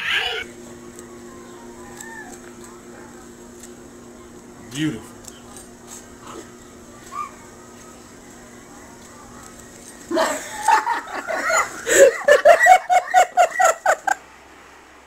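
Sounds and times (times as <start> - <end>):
person crying out: 0.0 - 0.5, 11.3 - 12.5
person laughing: 10.1 - 14.2.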